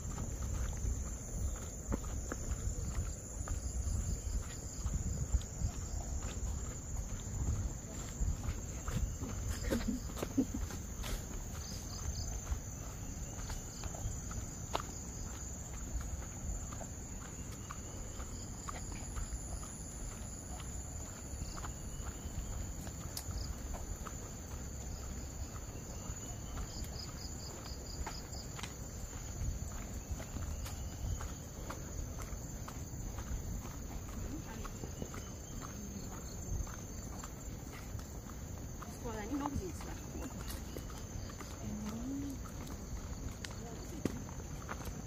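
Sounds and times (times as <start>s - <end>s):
footsteps tapping: 0.0s - 25.8s
insect chorus: 0.0s - 45.0s.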